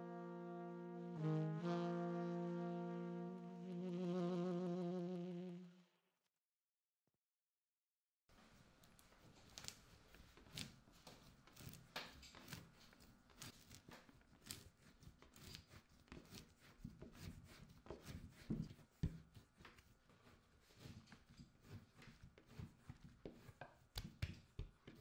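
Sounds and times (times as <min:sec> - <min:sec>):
hands patting clay: 0:08.9 - 0:25.0.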